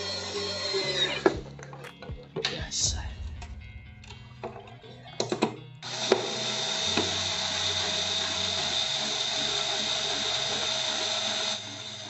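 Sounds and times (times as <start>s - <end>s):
drill driving a screw into plastic: 5.8s - 12.0s.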